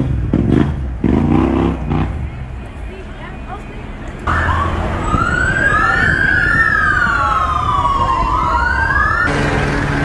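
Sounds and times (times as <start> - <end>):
emergency sirens wailing: 2.4 - 10.0.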